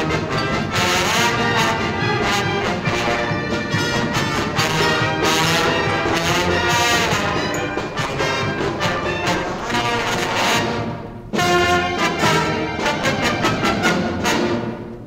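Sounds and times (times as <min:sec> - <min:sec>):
brass band playing held chords: 0:00.0 - 0:15.0.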